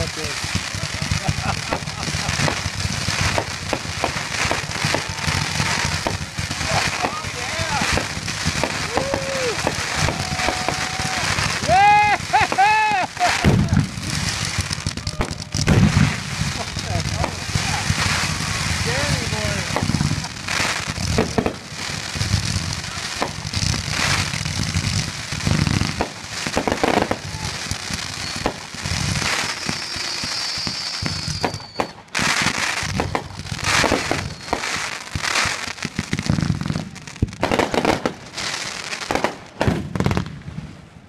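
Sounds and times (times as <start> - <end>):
fireworks launching and bursting: 0.0 - 41.0
falling whistle: 28.1 - 28.5, 29.6 - 32.0, 34.2 - 34.7.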